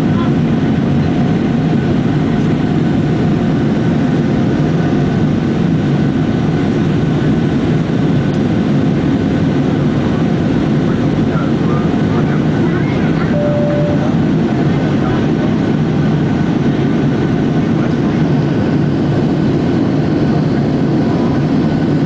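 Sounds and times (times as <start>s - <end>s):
jet engine and airflow rumble: 0.0s - 22.0s
faint steady tones: 13.3s - 14.8s.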